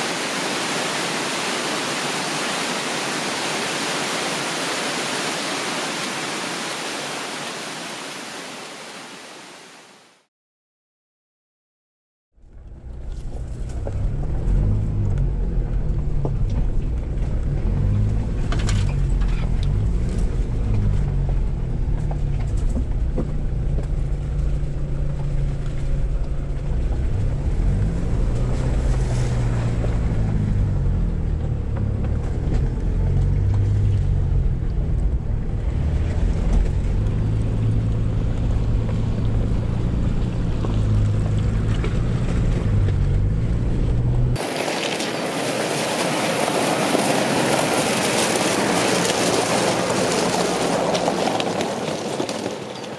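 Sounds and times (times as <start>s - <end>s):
vehicle engine revving at low speed: 12.4s - 44.4s
gravel crunching under wheels: 12.4s - 52.9s
water splashing under wheels: 12.9s - 52.9s.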